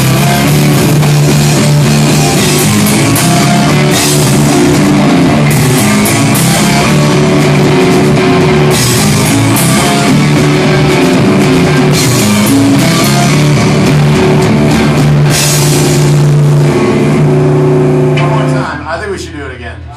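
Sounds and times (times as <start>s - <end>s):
electric guitar: 0.0s - 18.8s
drum kit: 0.0s - 19.9s.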